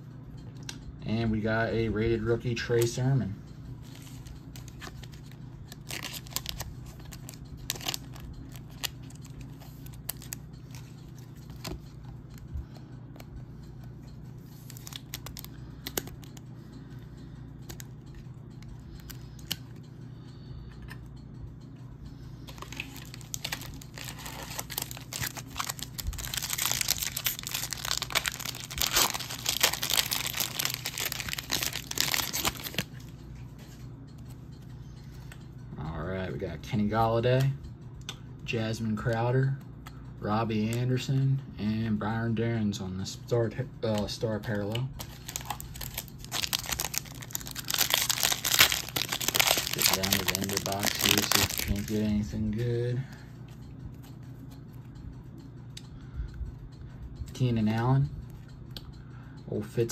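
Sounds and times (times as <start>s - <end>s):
wrapper tearing and crinkling: 4.6s - 10.4s, 14.6s - 16.1s, 22.5s - 32.9s, 45.0s - 52.0s
trading cards clicking: 22.5s - 33.1s, 43.9s - 52.1s.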